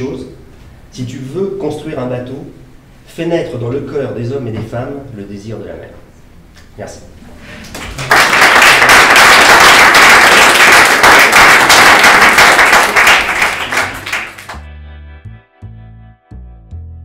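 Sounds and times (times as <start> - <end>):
audience applauding: 7.7 - 14.6.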